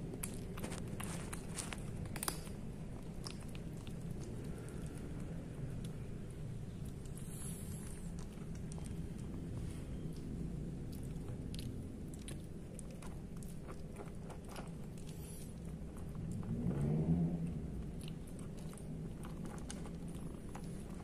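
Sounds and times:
kitten crunching dry kibble: 0.0 - 21.0.

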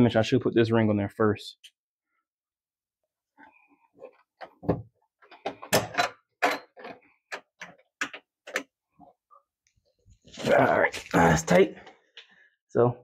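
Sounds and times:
metal clicks and knocks: 4.4 - 8.7.

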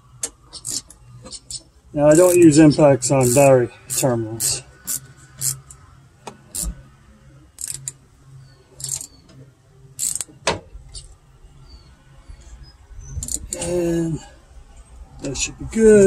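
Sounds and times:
ratchet wrench clicking: 0.5 - 2.6, 3.2 - 5.8, 6.5 - 6.8, 7.6 - 8.0, 8.8 - 9.2, 10.0 - 10.3, 13.2 - 13.7.

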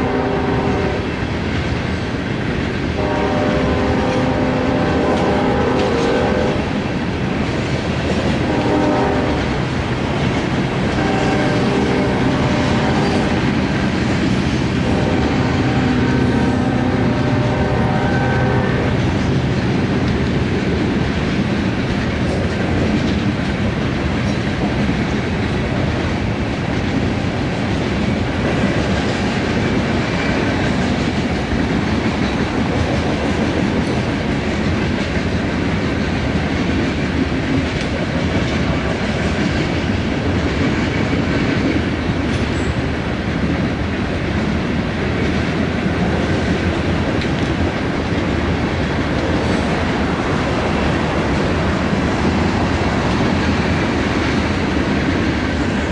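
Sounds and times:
locomotive air horn blasts: 0.0 - 1.1, 3.0 - 6.7, 8.4 - 9.6, 10.9 - 13.6, 14.8 - 19.3
train rumble and wheel clatter: 0.0 - 55.9.

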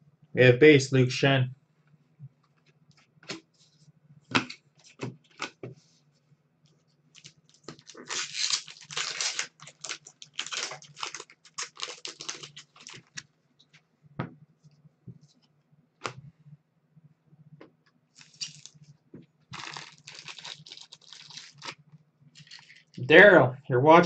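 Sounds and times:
low steady hum: 0.0 - 24.0
card pack wrapper crinkling: 7.2 - 13.2, 18.2 - 18.8, 19.5 - 21.8, 22.4 - 23.0.

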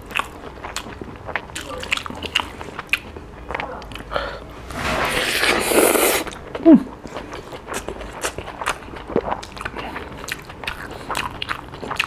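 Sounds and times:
lip smacks and chewing: 0.0 - 4.1, 7.1 - 12.0.

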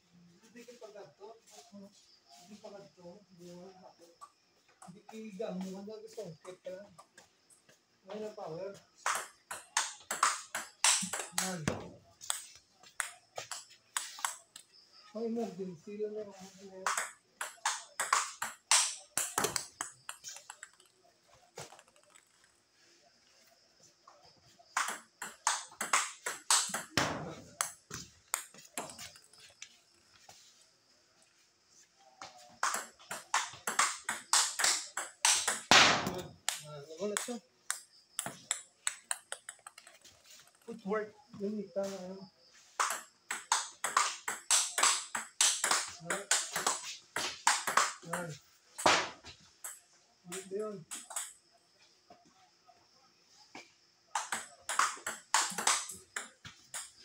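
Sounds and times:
table tennis ball clicking: 9.0 - 14.6, 16.8 - 20.9, 37.2 - 40.0.

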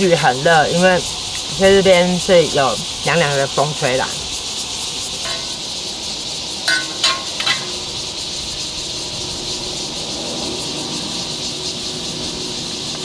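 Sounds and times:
insects hissing: 0.0 - 13.0
eating utensils clinking: 5.2 - 5.7, 6.7 - 7.9.

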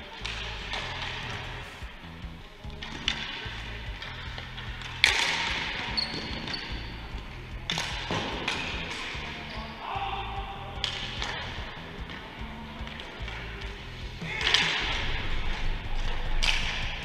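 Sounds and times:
background music: 0.0 - 17.0
ball and sticks knocking boards: 0.1 - 2.0, 2.7 - 9.4, 10.8 - 17.0.

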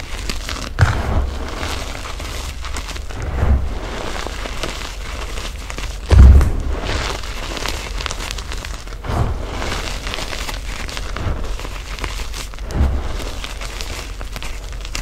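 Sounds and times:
chalk crunching and crumbling: 0.0 - 15.0
soft dull thuds: 6.1 - 6.9.

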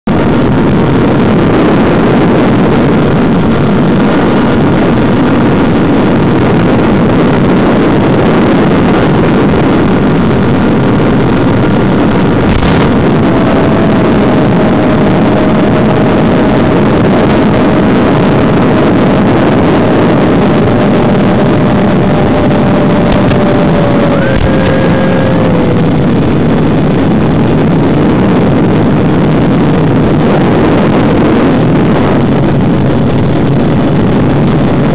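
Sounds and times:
rc plane motor drone: 11.9 - 26.5.

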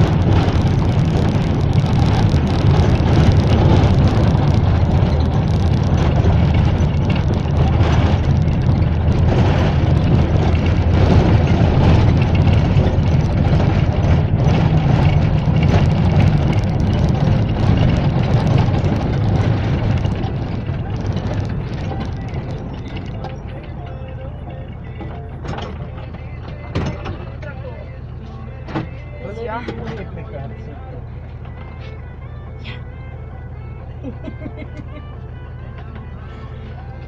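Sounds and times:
light rattles: 0.0 - 37.0
minibus engine drone: 0.0 - 37.0
road and wind noise: 0.0 - 37.0.

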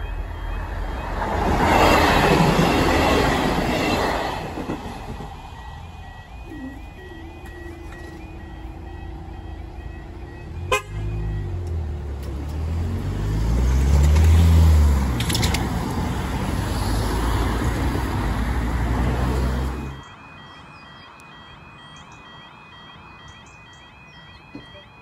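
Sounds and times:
cars driving past: 7.1 - 20.4.

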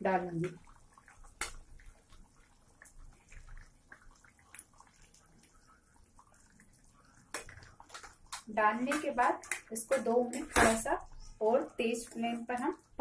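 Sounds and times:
gravy bubbling in a pot: 0.0 - 13.0
soft clicks and plops: 0.3 - 13.0.

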